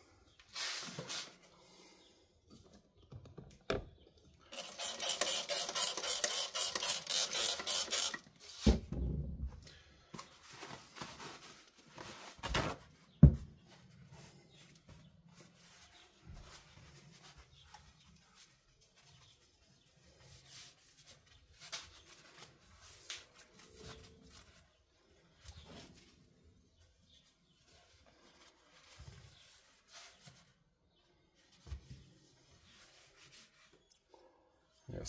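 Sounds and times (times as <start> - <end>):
spray bottle hissing: 4.6 - 8.2.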